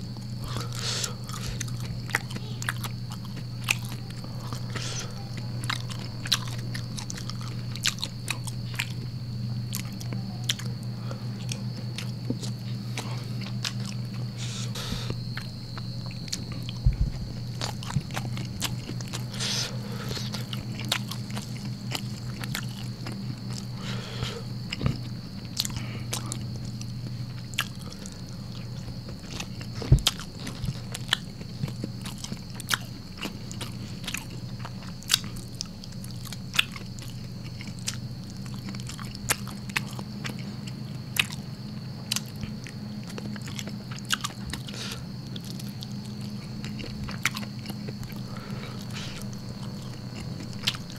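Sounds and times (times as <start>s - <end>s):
faint high whine: 0.0s - 34.9s, 37.4s - 50.9s
close chewing with mouth clicks: 0.0s - 50.9s
steady low hum: 0.0s - 50.9s.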